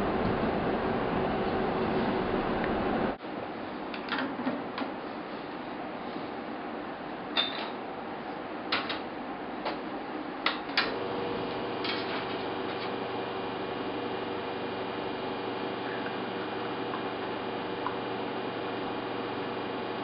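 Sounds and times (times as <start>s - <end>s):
espresso machine pump humming: 10.9s - 20.0s.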